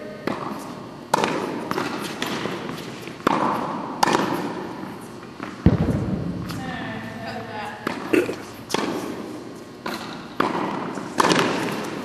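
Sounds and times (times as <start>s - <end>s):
tennis ball hit by rackets: 0.2s - 4.7s, 7.8s - 12.0s
tennis ball bouncing on hard court: 0.2s - 6.6s, 7.8s - 12.0s.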